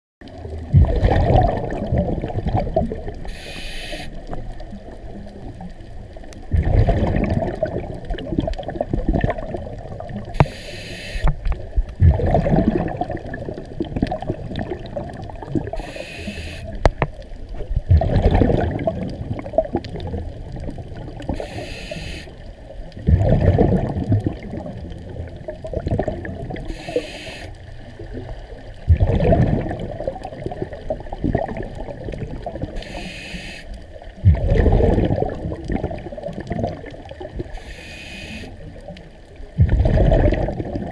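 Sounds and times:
exhaled bubbles rumbling: 0.2 - 10.5, 11.2 - 33.1, 33.7 - 40.9
regulator inhale hiss: 3.2 - 4.2, 10.4 - 11.4, 15.7 - 16.8, 21.3 - 22.4, 26.6 - 27.6, 32.8 - 33.8, 37.5 - 38.6.

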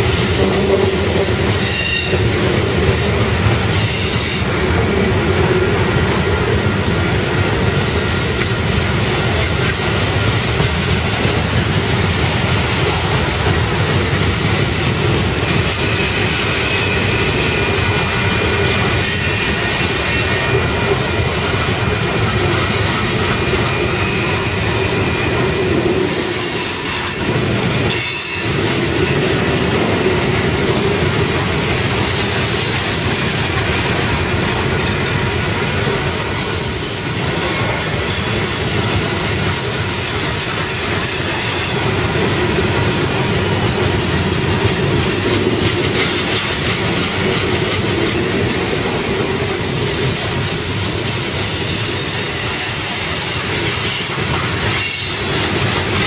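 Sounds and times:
train wheels rumbling on rail: 0.0 - 56.0
high wheel squeal: 23.0 - 29.1.

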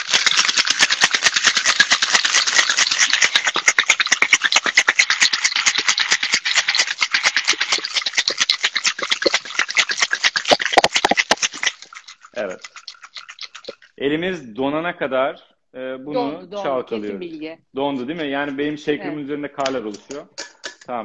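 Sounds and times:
ice rattling in cocktail shakers: 0.0 - 14.0.

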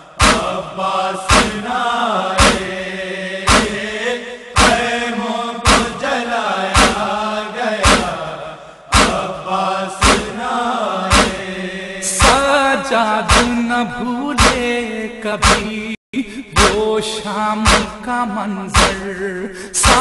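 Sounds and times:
men chanting a lament: 0.0 - 20.0
chest-beating: 4.6 - 4.8.

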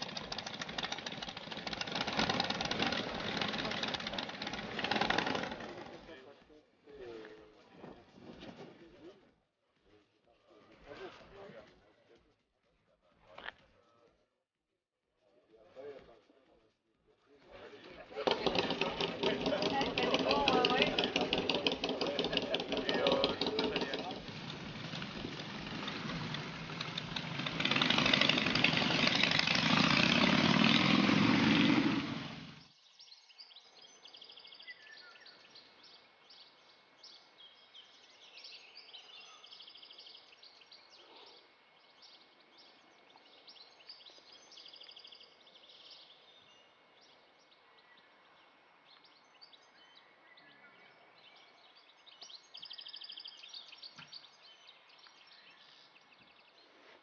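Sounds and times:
motorcycle engine running: 0.0 - 6.1, 18.1 - 32.7
birds chirping: 17.5 - 57.0.

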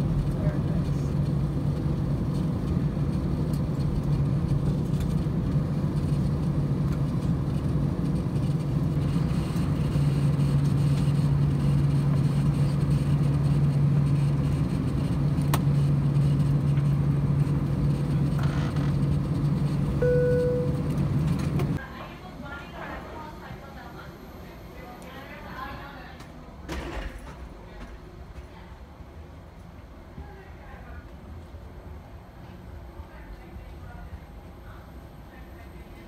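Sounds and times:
airplane cabin hum: 0.0 - 26.4
short tone: 20.0 - 21.0.

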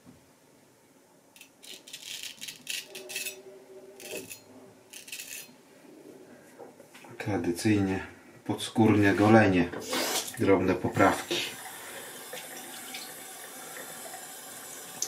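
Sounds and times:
razor scraping stubble: 4.0 - 5.6.

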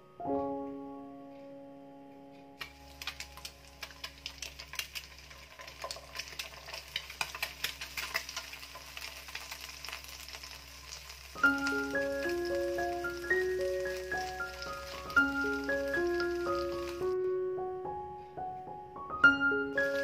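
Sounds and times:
egg sizzling in oil: 2.6 - 17.2, 19.8 - 20.0.

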